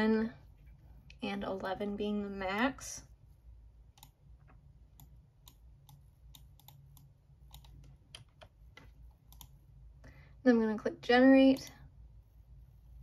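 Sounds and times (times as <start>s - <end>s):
low steady hum: 0.0s - 13.0s
keyboard and mouse clicks: 3.9s - 9.6s.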